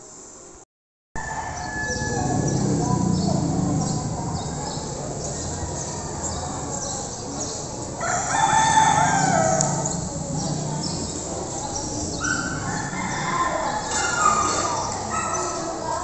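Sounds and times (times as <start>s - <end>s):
rooster crowing: 1.2s - 6.7s, 8.0s - 11.2s, 12.2s - 14.6s.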